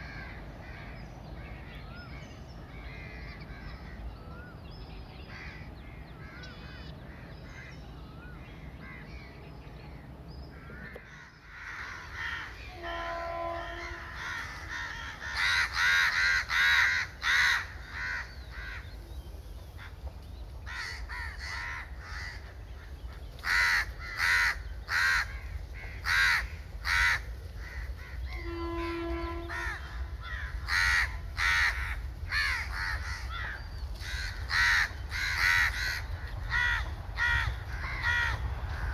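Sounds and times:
crows cawing: 0:00.0 - 0:04.6, 0:05.3 - 0:19.0, 0:19.8 - 0:38.9
train horn: 0:12.1 - 0:14.9, 0:28.0 - 0:31.5.

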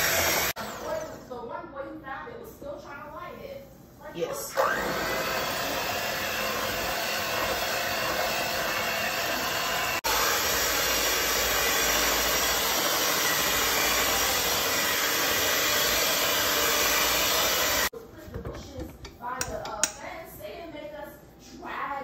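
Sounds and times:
electric hand mixer running: 0:00.0 - 0:01.2, 0:04.5 - 0:17.9.

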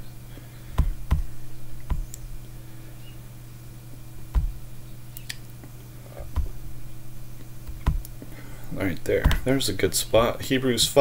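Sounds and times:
low electrical hum: 0:00.0 - 0:11.0
low thumps: 0:00.7 - 0:02.4, 0:04.2 - 0:04.8, 0:06.1 - 0:08.3, 0:09.0 - 0:09.7.

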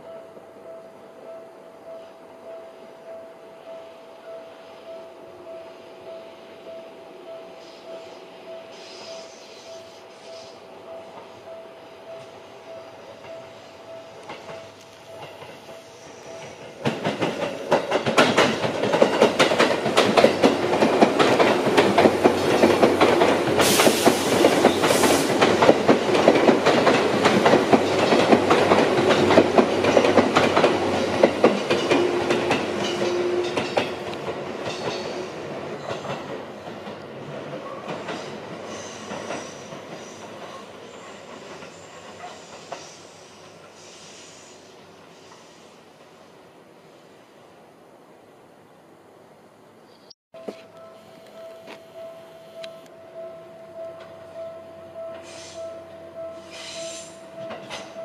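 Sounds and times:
train wheels clattering over rail joints: 0:14.2 - 0:35.2.

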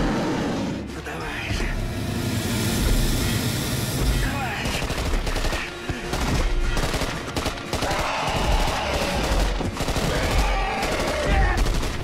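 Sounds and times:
rapid gunfire: 0:04.2 - 0:12.0.

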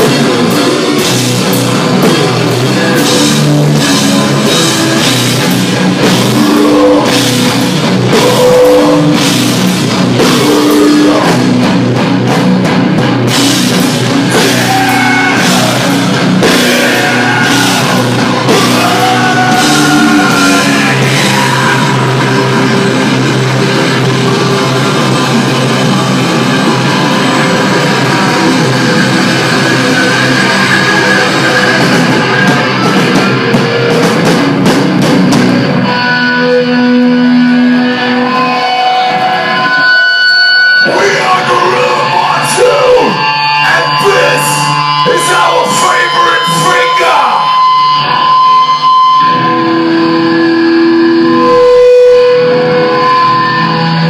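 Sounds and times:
drum kit: 0:00.0 - 0:39.7
distorted electric guitars: 0:00.0 - 0:54.0.

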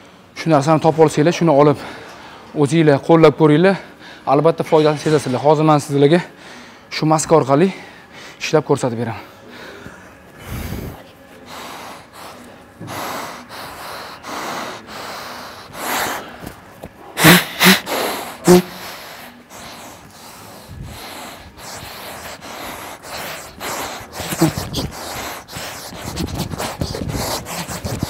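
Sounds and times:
man breathing hard through a mask: 0:06.3 - 0:06.9, 0:07.6 - 0:08.4, 0:09.2 - 0:28.0.

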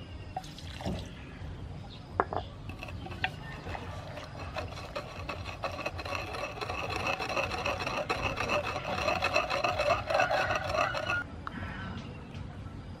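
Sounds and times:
pestle grinding in wooden mortar: 0:02.6 - 0:11.2.

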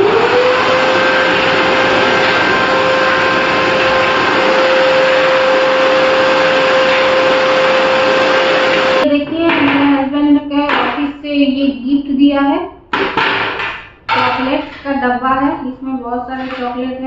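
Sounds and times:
vacuum cleaner motor whine: 0:00.0 - 0:09.0.

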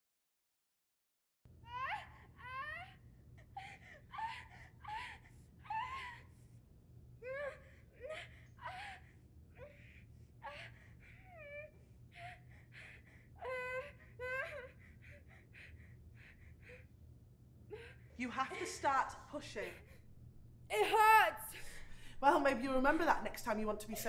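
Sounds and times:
low steady hum: 0:01.5 - 0:24.0
woman moaning in pain: 0:01.7 - 0:06.3, 0:07.2 - 0:09.0, 0:09.6 - 0:15.5, 0:20.7 - 0:21.8.

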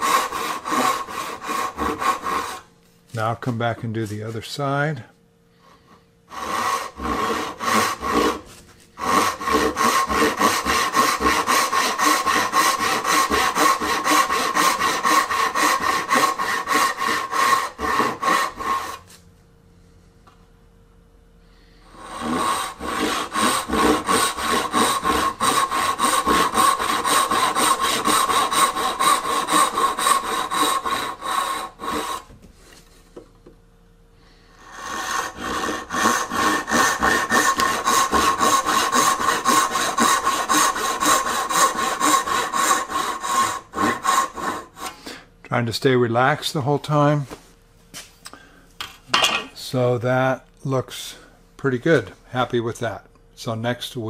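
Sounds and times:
hand saw cutting wood: 0:00.0 - 0:04.3, 0:05.9 - 0:19.2, 0:21.9 - 0:32.8, 0:34.6 - 0:45.2.

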